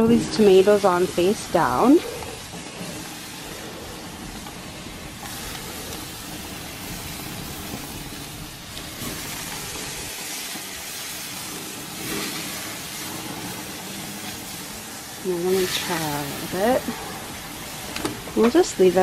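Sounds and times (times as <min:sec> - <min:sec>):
tomatoes sizzling on grill: 0:00.0 - 0:19.0.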